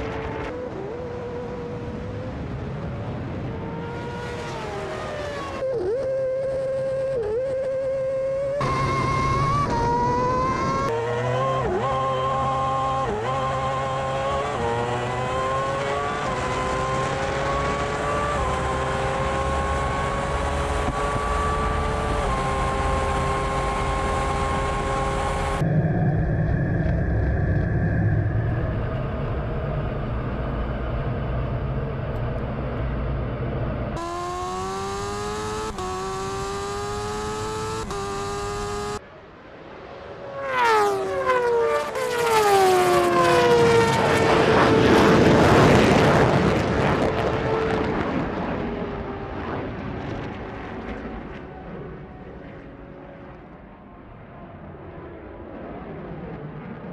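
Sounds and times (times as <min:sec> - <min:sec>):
racing engines accelerating: 0:00.0 - 0:25.7, 0:26.3 - 0:39.0, 0:40.2 - 0:50.4
jet engine rumble: 0:25.5 - 0:34.0
racing vehicle passing by: 0:39.8 - 0:49.7.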